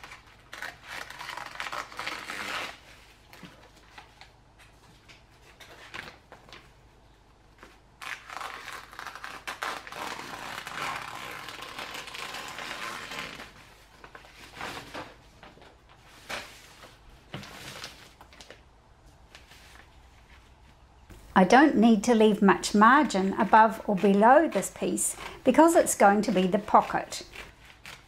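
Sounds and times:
scissors cutting plastic bag: 0:00.0 - 0:02.8, 0:23.3 - 0:28.0.

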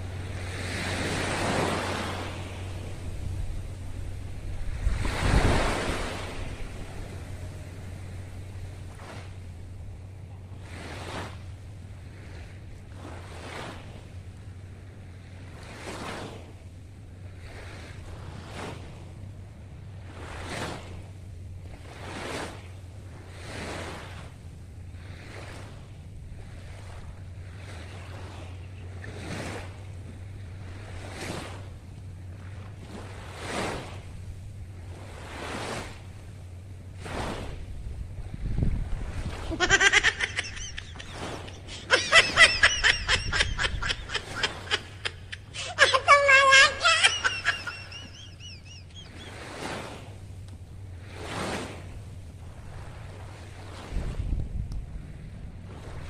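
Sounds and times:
wind rumble on microphone: 0:00.0 - 0:45.6, 0:48.3 - 0:56.0
small waves breaking on a beach: 0:00.0 - 0:56.0
steady low hum: 0:00.0 - 0:56.0
high-pitched laughter: 0:39.5 - 0:49.3.

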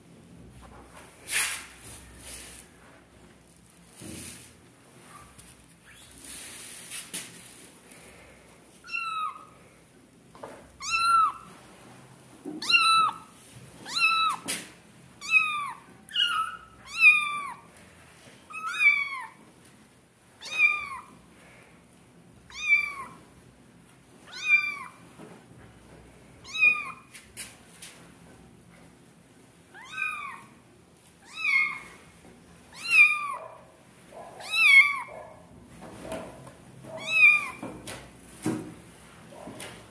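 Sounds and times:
kittens mewing: 0:36.9 - 0:37.6.

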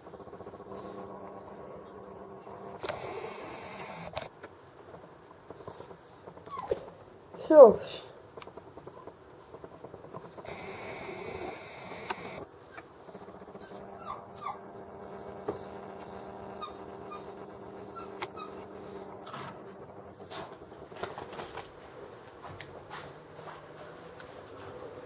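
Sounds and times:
camera zoom motor whine: 0:00.2 - 0:04.3, 0:10.2 - 0:20.4
motor hiss: 0:02.4 - 0:04.3, 0:10.4 - 0:12.4
faint high squeaks: 0:10.2 - 0:20.6.

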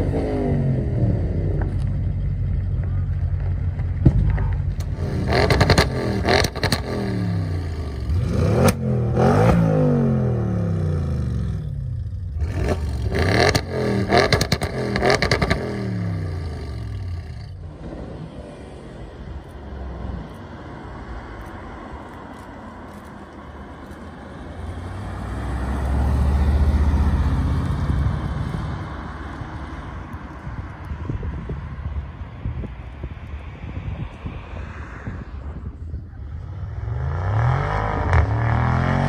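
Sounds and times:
car engine revving: 0:00.0 - 0:20.5, 0:24.5 - 0:30.4, 0:36.4 - 0:39.0
car passing by: 0:17.6 - 0:39.0.

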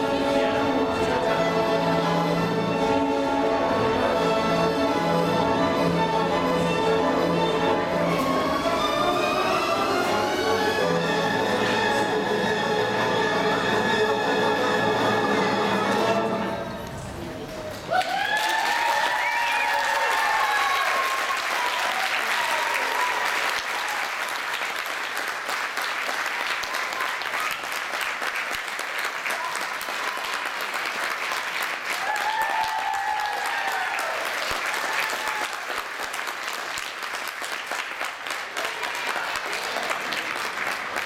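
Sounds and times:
audience applauding: 0:17.7 - 0:41.0.

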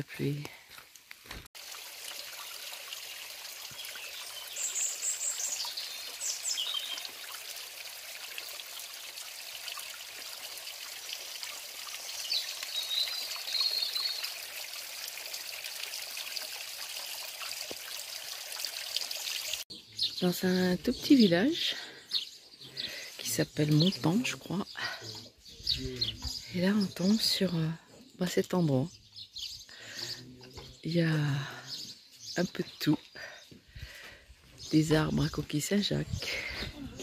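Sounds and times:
water trickling over stones: 0:00.0 - 0:22.0, 0:22.6 - 0:37.0
birds chirping: 0:03.0 - 0:09.5, 0:11.8 - 0:14.6, 0:19.0 - 0:37.0.

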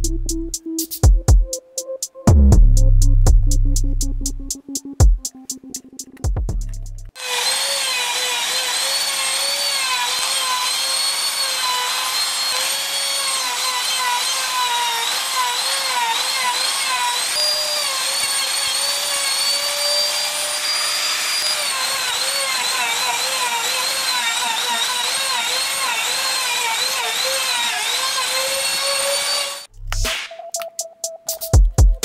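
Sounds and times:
router cutting plywood: 0:07.1 - 0:29.7.

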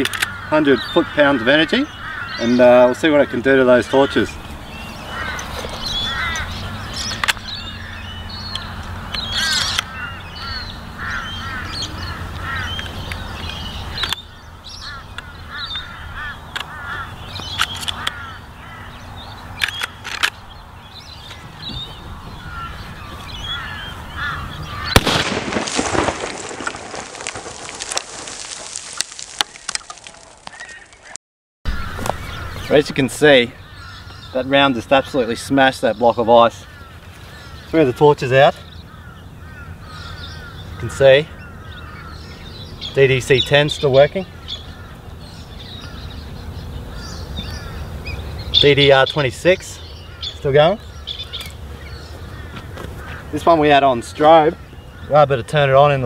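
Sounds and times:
crows cawing: 0:00.0 - 0:20.3, 0:21.0 - 0:31.1, 0:31.7 - 0:56.0
birds chirping: 0:00.0 - 0:56.0
loud rifle shot: 0:24.9 - 0:27.0.

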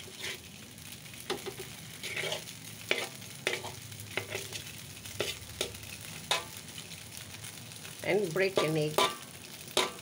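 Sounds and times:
metal spatula scraping a wok: 0:00.0 - 0:00.6, 0:01.3 - 0:06.6, 0:08.5 - 0:10.0
noodles sizzling in oil: 0:00.0 - 0:10.0.

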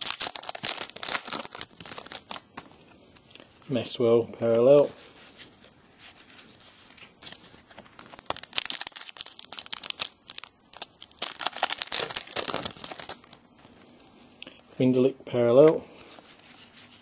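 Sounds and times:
foil wrappers crinkling and tearing: 0:00.0 - 0:02.9, 0:05.3 - 0:14.0.

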